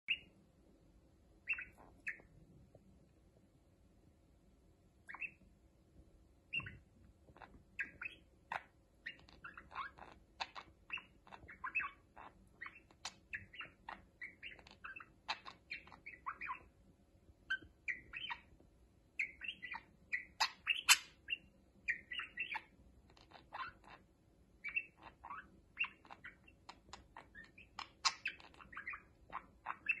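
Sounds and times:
parakeets chattering: 0:01.4 - 0:02.3, 0:05.1 - 0:05.4, 0:06.5 - 0:16.7, 0:17.4 - 0:18.6, 0:19.2 - 0:30.0.

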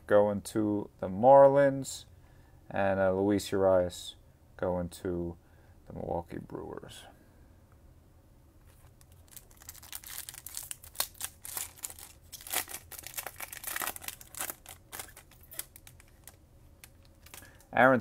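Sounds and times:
foil wrapper crinkling: 0:08.7 - 0:17.7.

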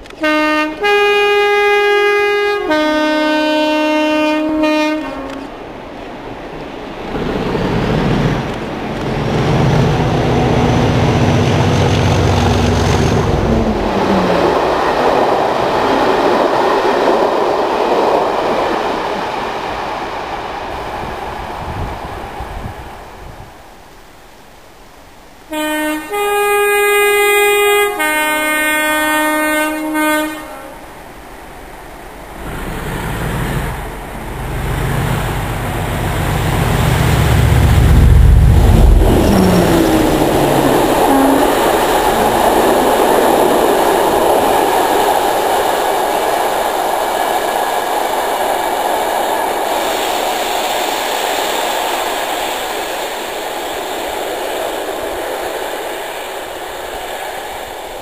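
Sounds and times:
locomotive multi-tone horn: 0:00.0 - 0:05.6, 0:25.5 - 0:30.9, 0:37.7 - 0:43.3
diesel locomotive engine rumble: 0:00.0 - 0:24.2, 0:25.0 - 0:58.0
train wheels clattering on rails: 0:06.5 - 0:20.2.

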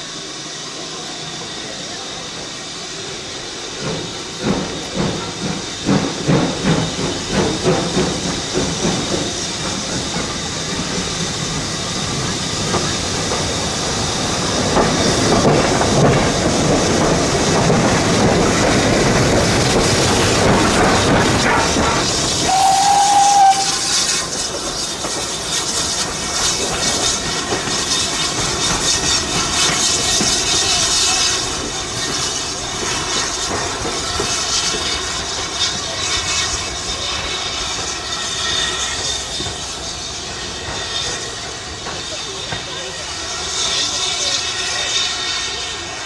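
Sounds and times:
steam hissing: 0:00.0 - 0:46.0
steam locomotive whistle: 0:22.4 - 0:24.3.

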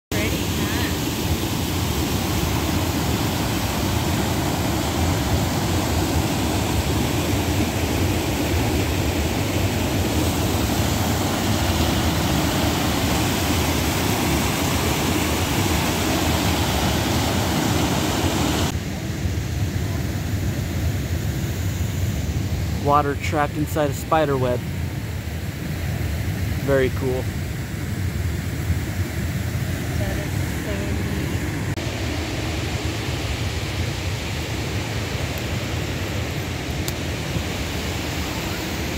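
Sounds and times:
river rapids rushing: 0:00.2 - 0:18.7.

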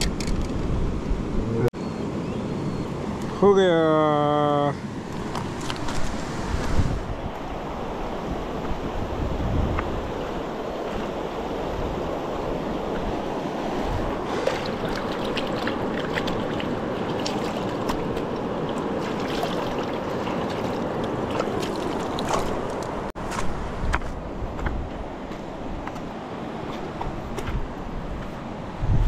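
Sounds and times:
fast-flowing river rushing: 0:06.2 - 0:23.1.

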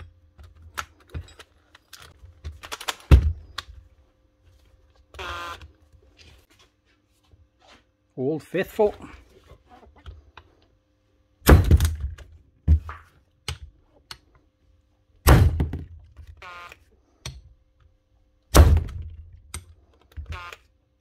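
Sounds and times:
drill motor whirring: 0:05.1 - 0:05.7, 0:16.4 - 0:16.8, 0:20.2 - 0:20.7.

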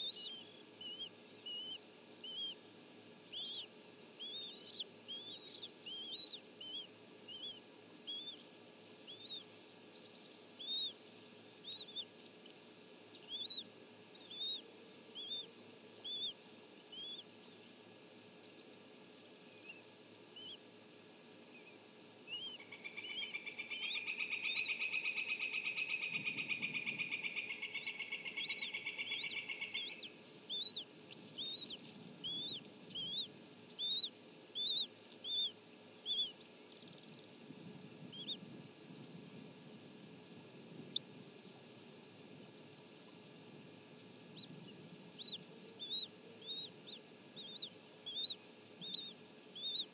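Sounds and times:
eagle chittering call: 0:00.0 - 0:02.6, 0:03.3 - 0:08.4, 0:13.2 - 0:14.6, 0:15.2 - 0:17.2, 0:22.3 - 0:36.4, 0:44.4 - 0:49.9
eagle chicks peeping: 0:00.0 - 0:17.5, 0:20.4 - 0:20.6, 0:22.3 - 0:49.9.

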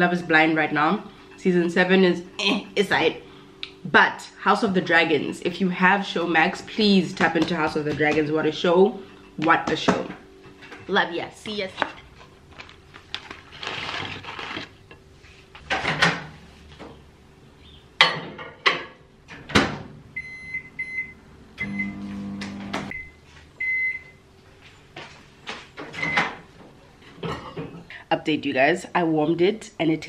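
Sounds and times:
fries rustling out of paper box: 0:12.5 - 0:14.8
microwave low hum: 0:19.2 - 0:28.0.

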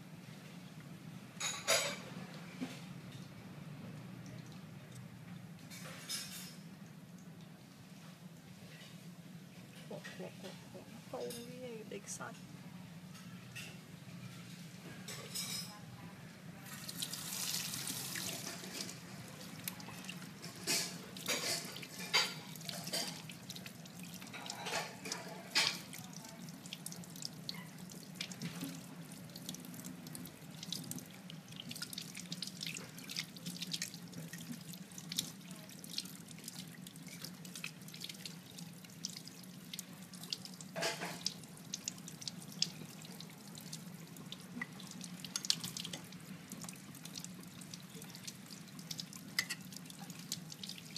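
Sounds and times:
tap water running into sink: 0:16.8 - 0:27.1
water splashing and dripping: 0:16.8 - 0:50.9.

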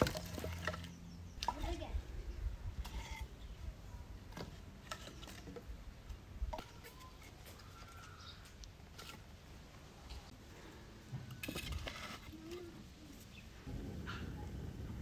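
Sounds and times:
firewood logs knocking: 0:00.0 - 0:01.6
low rumble: 0:13.7 - 0:15.0.

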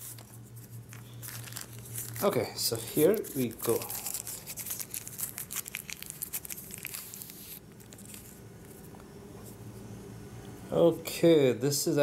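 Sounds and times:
plastic sleeve crinkling: 0:00.0 - 0:09.0.

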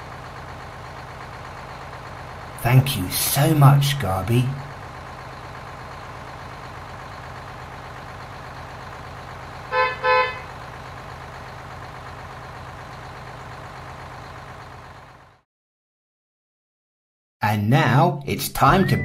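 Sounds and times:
garbage truck engine running: 0:00.0 - 0:15.4
truck horn toots: 0:09.7 - 0:10.6.

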